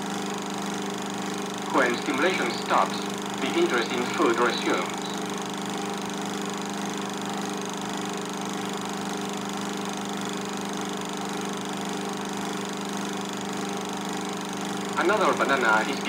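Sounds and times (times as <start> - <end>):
film projector running: 0.0 - 16.0.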